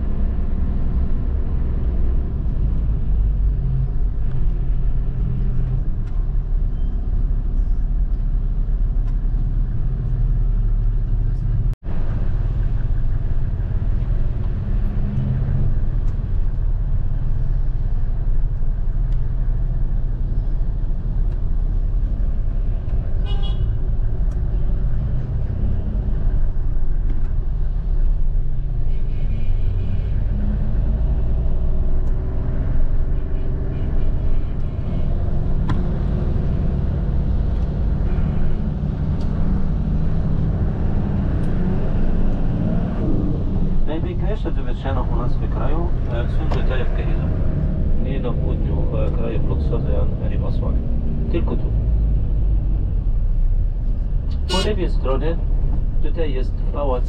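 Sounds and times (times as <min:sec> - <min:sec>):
car horns honking: 0:23.2 - 0:23.8, 0:54.3 - 0:54.8
coach engine rumble: 0:43.0 - 0:57.0.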